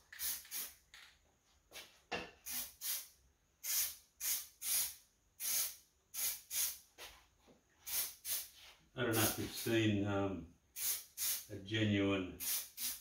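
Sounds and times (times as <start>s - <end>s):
aerosol can spraying: 0.1s - 0.8s, 2.4s - 6.8s, 7.9s - 8.5s, 10.8s - 11.5s, 12.4s - 13.0s.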